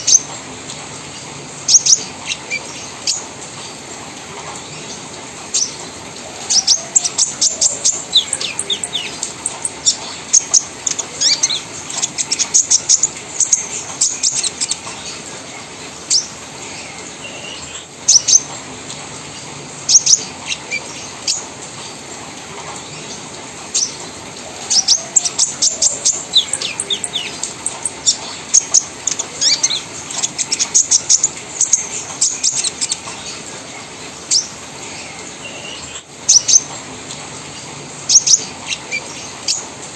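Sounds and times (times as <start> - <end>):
sunbird chattering song: 1.7 - 3.3, 6.4 - 15.3, 19.9 - 21.5, 24.6 - 33.5, 38.1 - 39.7.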